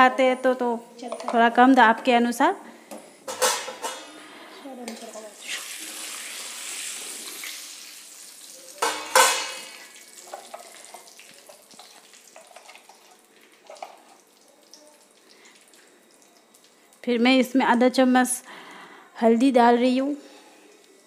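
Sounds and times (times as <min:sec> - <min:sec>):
spices sizzling in hot oil: 0:04.8 - 0:17.9.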